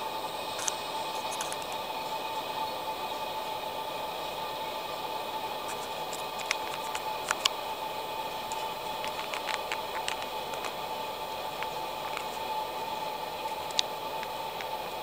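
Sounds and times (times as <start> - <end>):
static hiss: 0.0 - 15.0
clicks and crackles: 0.6 - 1.8, 5.7 - 7.6, 8.4 - 14.8.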